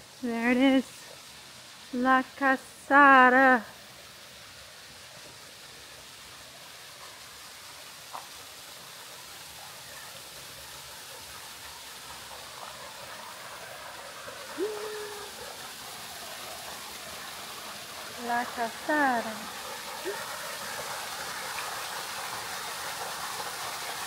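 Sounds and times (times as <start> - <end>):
waterfall rushing: 12.0 - 24.0
rising held call: 14.6 - 15.4.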